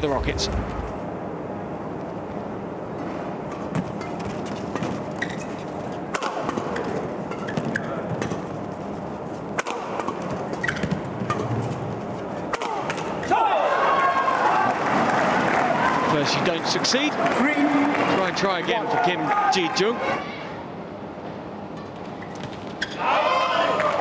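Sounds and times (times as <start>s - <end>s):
shoes squeaking on court: 3.2s - 12.5s, 21.8s - 23.0s
racket striking shuttlecock: 6.1s - 8.4s, 9.5s - 10.2s.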